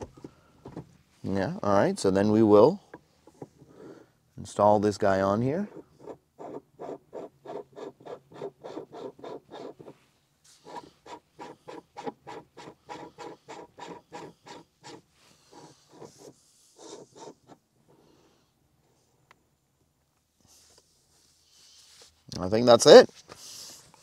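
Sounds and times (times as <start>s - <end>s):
shift knob rasping on thread: 10.6s - 17.6s.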